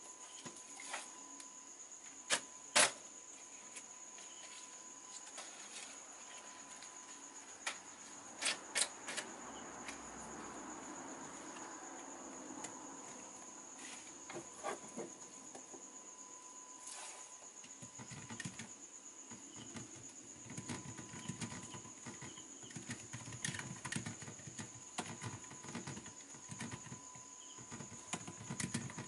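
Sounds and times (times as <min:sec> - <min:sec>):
faint high whine: 0:00.0 - 0:29.0.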